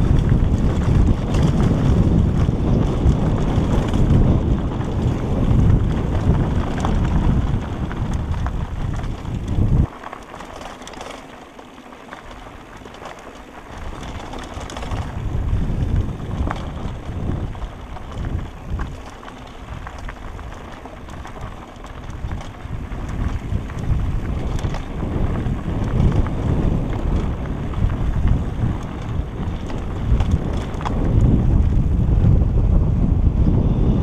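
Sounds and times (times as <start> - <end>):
wind buffeting microphone: 0.0 - 11.2, 12.1 - 34.0
bike clicks and rattles: 0.0 - 33.9
bike tyres crunching gravel: 0.0 - 34.0.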